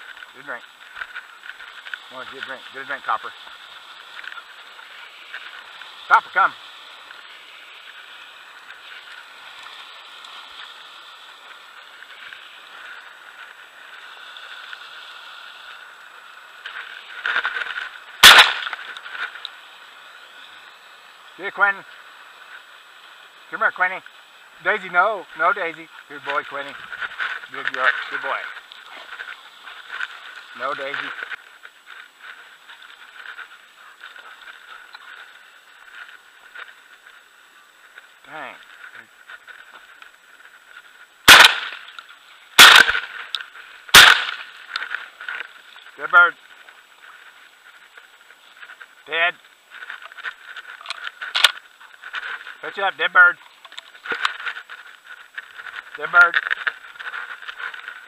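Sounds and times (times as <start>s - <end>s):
faint outdoor hiss: 0.0s - 58.0s
footsteps on dirt road: 0.0s - 58.0s
shotgun shot: 18.2s - 18.8s, 41.3s - 41.8s, 42.6s - 43.1s, 43.9s - 44.4s
brief rustle: 53.3s - 58.0s.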